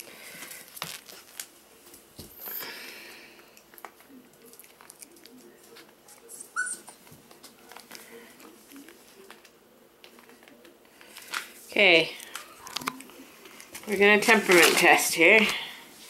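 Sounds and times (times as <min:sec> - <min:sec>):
puppy squeak: 0:06.3 - 0:07.0
clicks and rustles of handling: 0:07.0 - 0:15.7.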